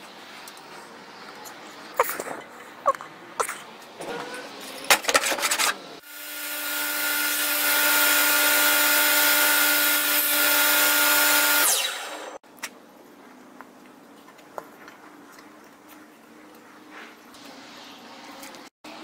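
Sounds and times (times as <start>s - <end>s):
bandsaw cutting board: 5.1s - 12.4s.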